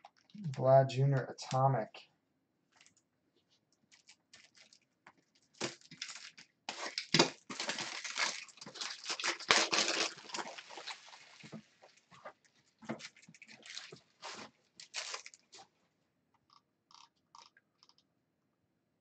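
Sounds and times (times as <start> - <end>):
plastic sleeves rustling and crinkling: 2.7 - 15.8.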